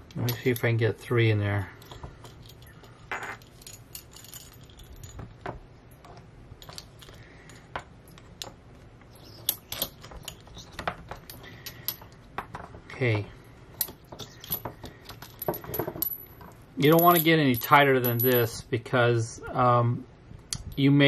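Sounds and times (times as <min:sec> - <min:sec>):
cable rubbing through cores: 0:06.0 - 0:13.2.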